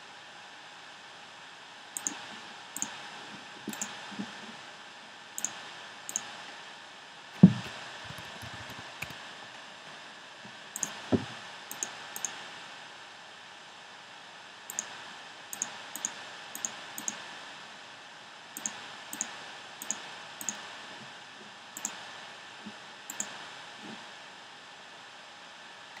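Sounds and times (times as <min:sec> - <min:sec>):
computer mouse clicks: 0:02.0 - 0:02.2, 0:02.8 - 0:03.0, 0:03.7 - 0:04.0, 0:05.4 - 0:06.3, 0:07.5 - 0:09.2, 0:10.8 - 0:11.0, 0:11.7 - 0:12.4, 0:14.7 - 0:17.2, 0:18.6 - 0:20.6, 0:21.8 - 0:22.0, 0:23.1 - 0:23.4.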